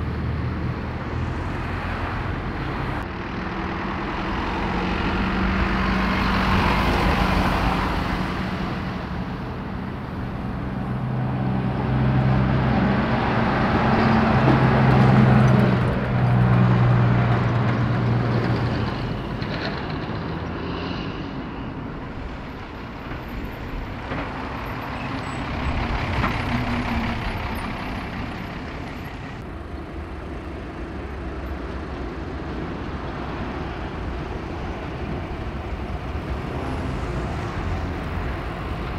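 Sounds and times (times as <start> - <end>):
heavy lorry engine: 0.0 - 38.9
road traffic passing: 0.0 - 38.9.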